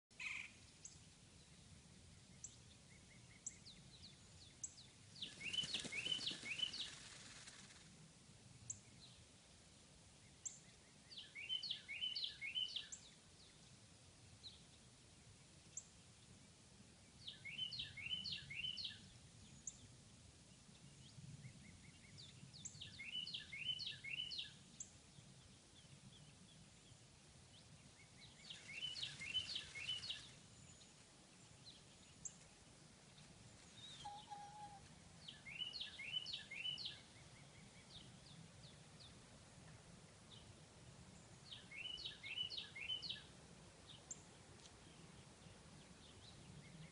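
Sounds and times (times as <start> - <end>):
songbird singing: 0.1 - 46.9
thin high bird chirps: 28.4 - 30.4.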